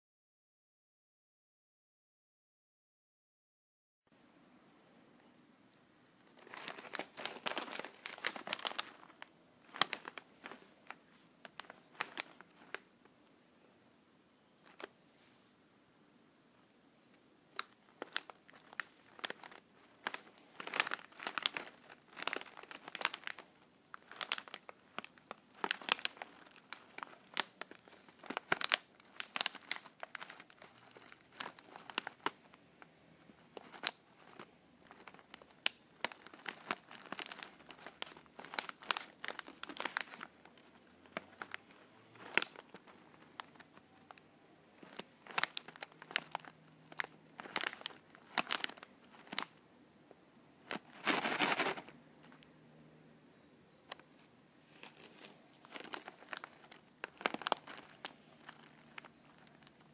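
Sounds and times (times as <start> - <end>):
plastic pouch crinkling: 6.2 - 12.9, 17.5 - 32.6, 33.3 - 49.6, 50.6 - 52.5, 54.7 - 59.9.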